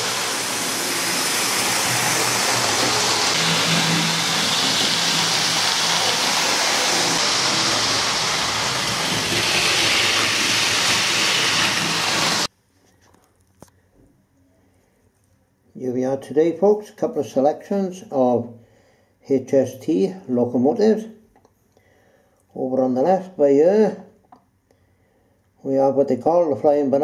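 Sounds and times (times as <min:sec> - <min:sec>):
model train running on track: 0:00.0 - 0:12.5.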